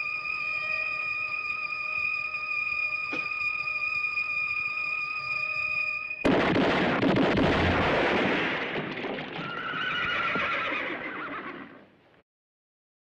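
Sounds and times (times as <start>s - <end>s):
horse whinnying: 9.3s - 11.9s.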